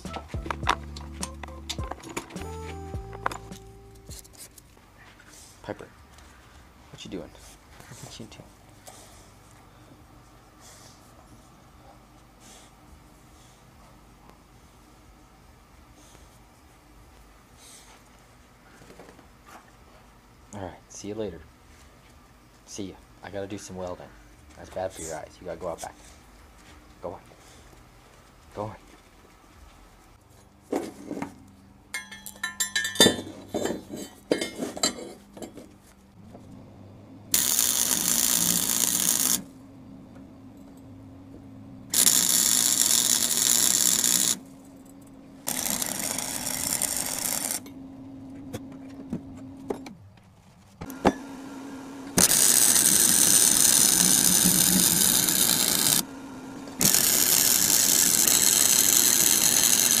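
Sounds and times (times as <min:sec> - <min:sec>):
steel bars clanking: 0:31.9 - 0:35.2
arc welding crackling and hissing: 0:37.3 - 0:39.6, 0:41.9 - 0:44.5, 0:45.4 - 0:47.6, 0:50.8 - 1:00.0.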